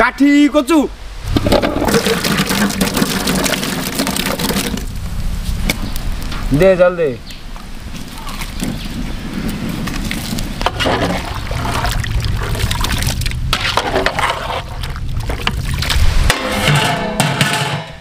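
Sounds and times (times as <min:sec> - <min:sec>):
water sloshing and splashing: 0:01.2 - 0:04.9, 0:08.0 - 0:16.4
water pouring into a pot: 0:01.3 - 0:04.9, 0:10.1 - 0:16.0
knocks against a metal pot: 0:16.3 - 0:18.0.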